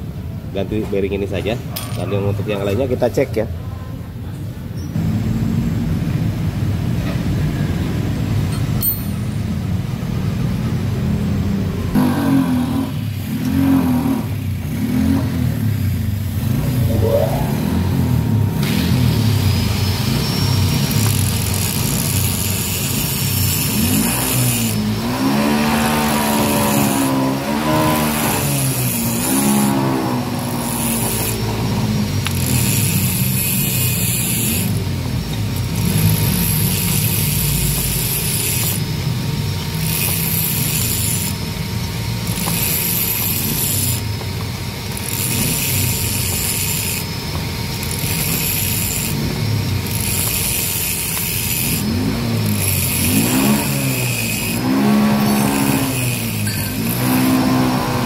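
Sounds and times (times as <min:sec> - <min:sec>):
engine running: 0:05.0 - 0:58.0.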